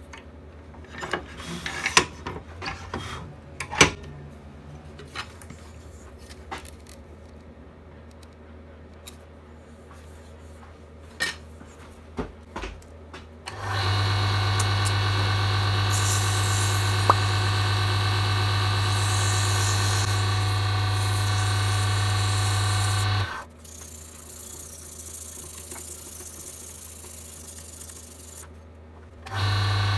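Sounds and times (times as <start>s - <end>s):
wood lathe motor hum and whine: 13.5s - 23.4s, 29.3s - 29.9s
sandpaper rubbing hiss: 21.0s - 28.4s.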